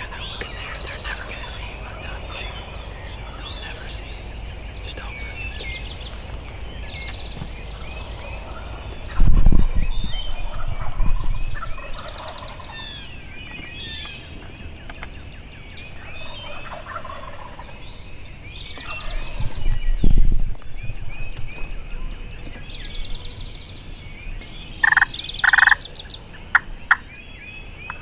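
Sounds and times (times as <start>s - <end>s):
small birds chirping: 0.0s - 28.0s
turkeys gobbling: 16.1s - 17.7s, 24.8s - 25.8s.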